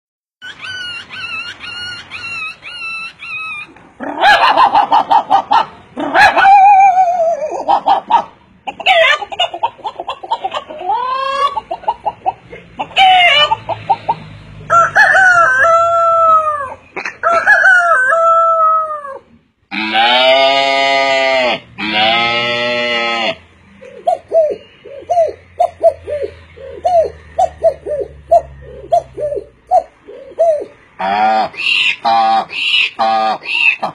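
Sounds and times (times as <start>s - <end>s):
man imitating rooster crowing: 14.7s - 21.5s
man imitating clucking: 24.0s - 31.5s.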